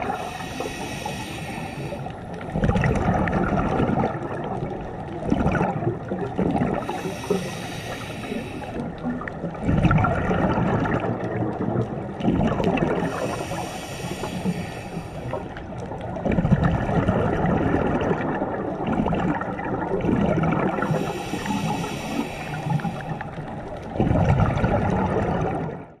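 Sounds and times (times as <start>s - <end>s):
hissing regulator inhalations: 0.0s - 2.5s, 6.8s - 9.0s, 13.0s - 15.6s, 20.8s - 23.5s
gurgling exhaled bubbles: 0.0s - 26.0s.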